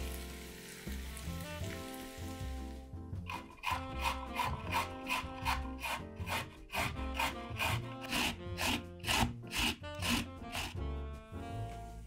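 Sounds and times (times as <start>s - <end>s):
soft background music: 0.0s - 12.0s
food rasping on hand grater: 3.3s - 10.8s.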